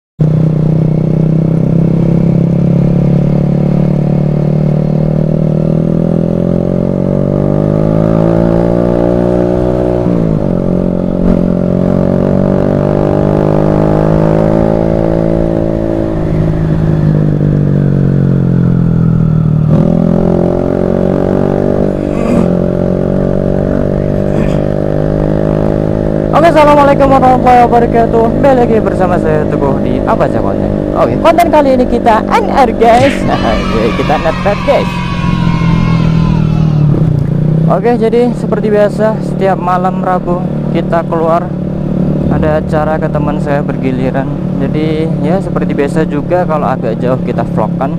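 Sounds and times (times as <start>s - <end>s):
scooter engine revving: 29.4s - 37.8s.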